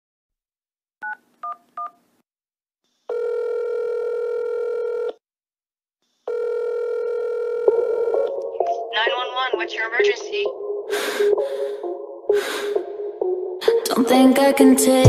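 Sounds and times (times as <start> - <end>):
telephone ringback tone: 3.1 - 5.2, 6.3 - 8.3.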